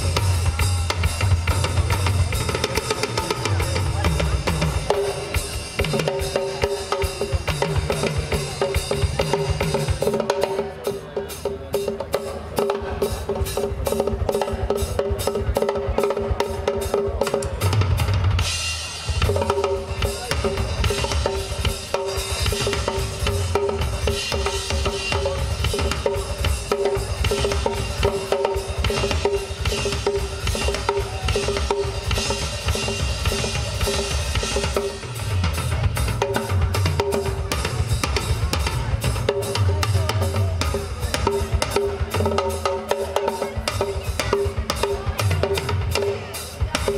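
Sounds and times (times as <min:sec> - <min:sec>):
drum solo on rock kit: 0:00.0 - 0:46.9.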